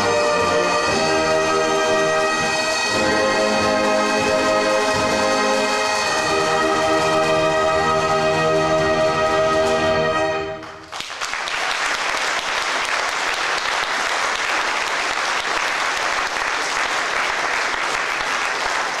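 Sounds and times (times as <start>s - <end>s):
audience applause: 10.6s - 19.0s.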